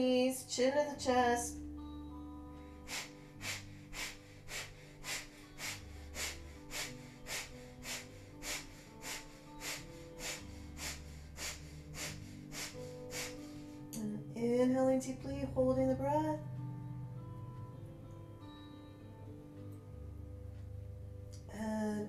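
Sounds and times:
soft background music: 0.0s - 22.0s
rapid forceful breathing: 2.7s - 13.9s.

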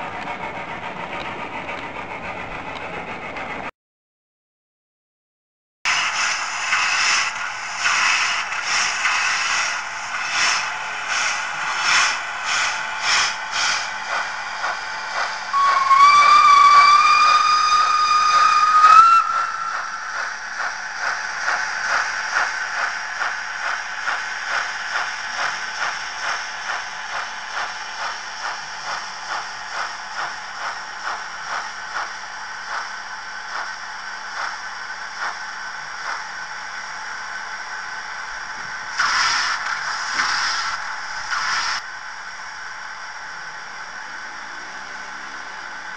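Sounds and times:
model locomotive steam chuffs: 0.0s - 3.7s, 5.9s - 45.9s
locomotive whistle blast: 15.5s - 20.0s.

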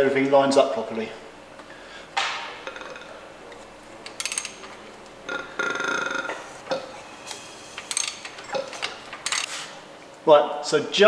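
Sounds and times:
engine rasping: 0.7s - 10.2s
metal clinks of tool and engine: 2.8s - 4.9s.

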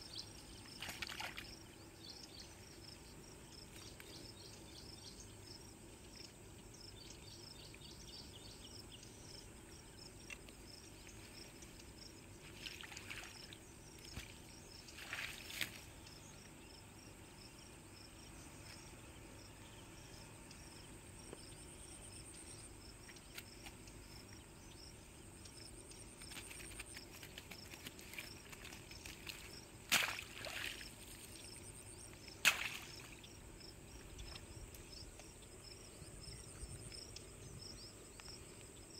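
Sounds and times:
insects chirping: 0.0s - 38.9s
rustles and knocks in grass: 14.0s - 15.9s, 26.2s - 31.4s, 32.3s - 33.2s.

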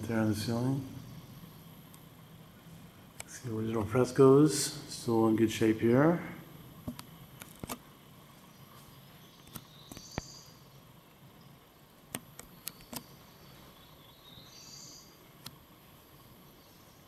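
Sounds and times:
faint high bird chirps: 8.4s - 15.2s.

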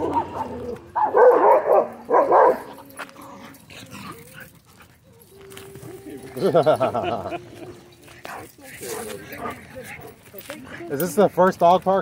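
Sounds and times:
dog barking: 0.0s - 2.8s.

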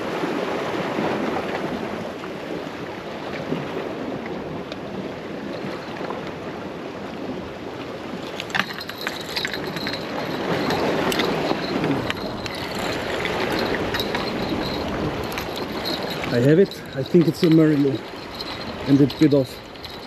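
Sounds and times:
surf against rocks: 0.0s - 20.0s
wind: 0.0s - 20.0s
fishing reel whirring: 8.2s - 20.0s.

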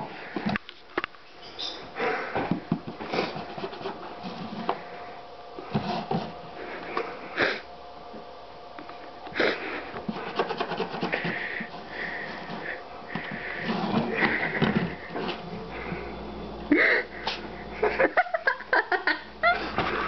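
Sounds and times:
cat sniffing: 9.4s - 16.0s.

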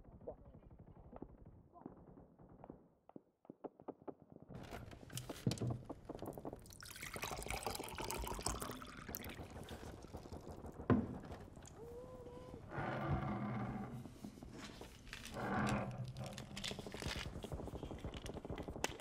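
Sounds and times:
water pouring into a cup: 6.6s - 10.8s.

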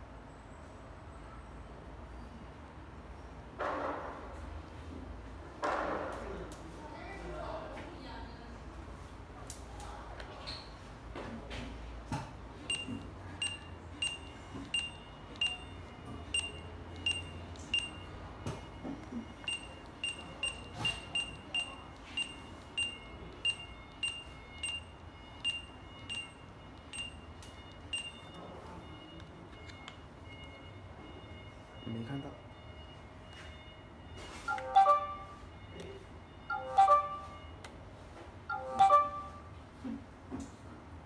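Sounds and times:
scanner short beeps: 12.7s - 37.6s, 38.5s - 39.6s.

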